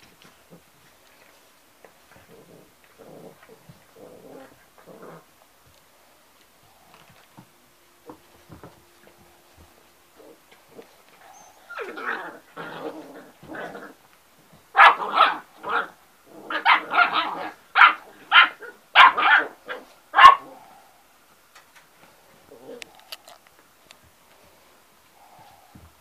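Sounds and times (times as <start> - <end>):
puppies barking: 14.7 - 20.6.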